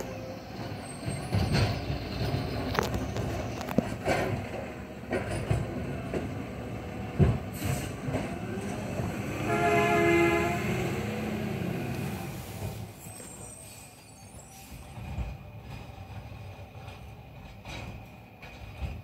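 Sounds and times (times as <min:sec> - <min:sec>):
knocks and clanks: 0:01.1 - 0:06.4.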